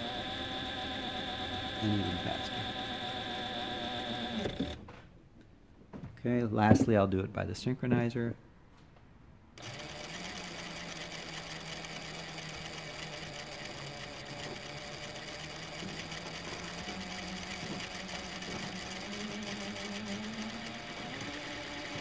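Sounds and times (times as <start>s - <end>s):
sewing machine humming: 0.0s - 4.8s, 9.6s - 22.0s.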